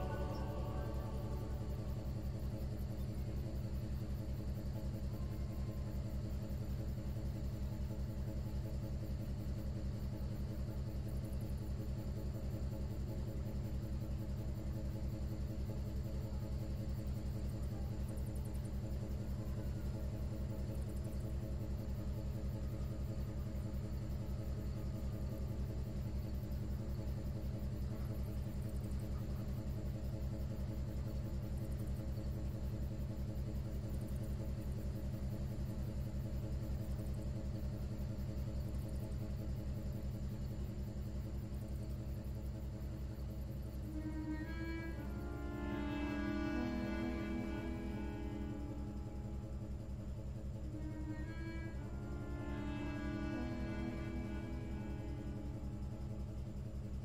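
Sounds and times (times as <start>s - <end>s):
ship engine throbbing: 0.0s - 3.5s, 43.7s - 57.0s.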